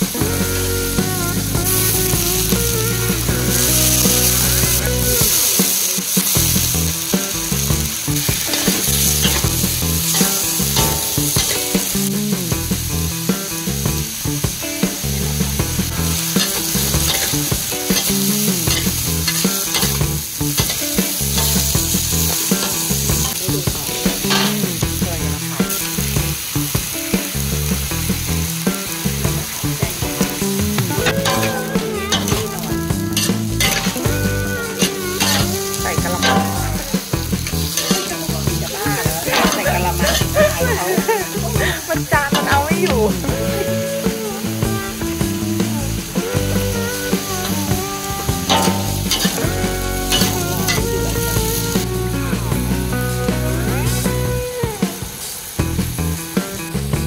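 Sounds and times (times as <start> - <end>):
food sizzling in a wok: 0.0 - 57.0
metal spatula scraping a wok: 16.4 - 20.0, 34.8 - 38.4, 48.4 - 50.8.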